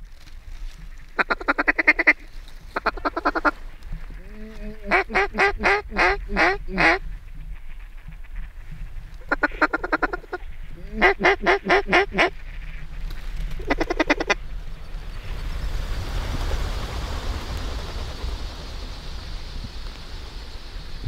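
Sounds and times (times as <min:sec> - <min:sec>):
rush of noise: 0:00.2 - 0:21.0
duck quacking: 0:01.2 - 0:02.2, 0:02.8 - 0:03.6, 0:04.2 - 0:07.0, 0:09.2 - 0:12.8, 0:13.6 - 0:14.4.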